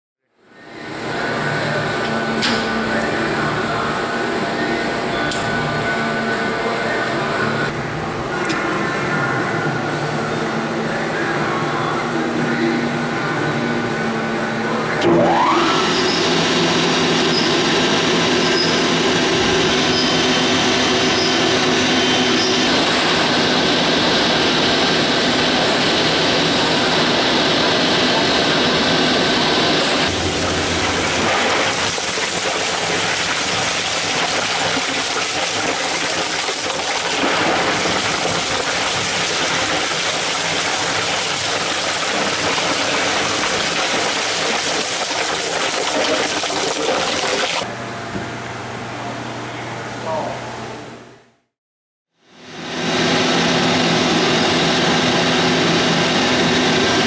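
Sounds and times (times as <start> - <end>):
shredder grinding plastic: 30.0 - 47.6.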